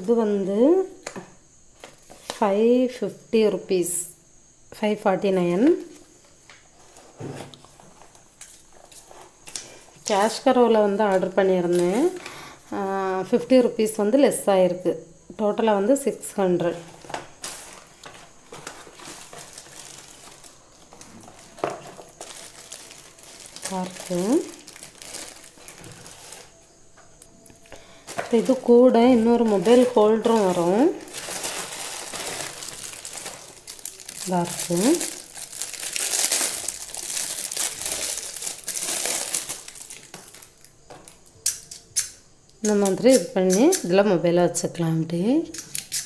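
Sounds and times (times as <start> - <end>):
packaging rustling and scraping: 6.7 - 10.2, 16.7 - 41.2.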